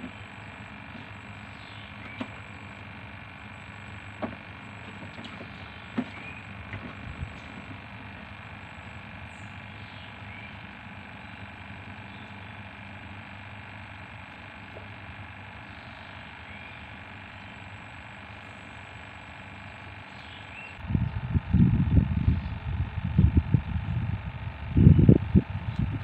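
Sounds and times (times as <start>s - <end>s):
outdoor ambient hiss and hum: 0.0s - 26.0s
rising bird chirp: 9.3s - 12.6s, 15.6s - 17.7s, 20.0s - 21.3s.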